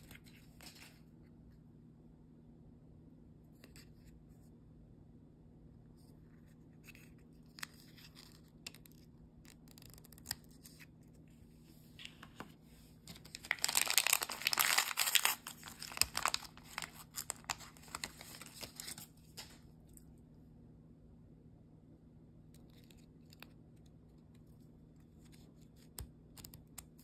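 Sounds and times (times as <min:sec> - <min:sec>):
plastic wrapper crinkling: 0:13.1 - 0:19.6.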